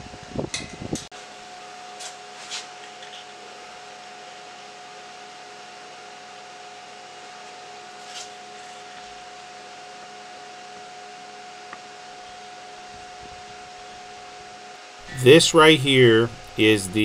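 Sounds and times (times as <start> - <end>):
background hum: 15.0 - 17.0
constant high-pitched tone: 15.0 - 17.0.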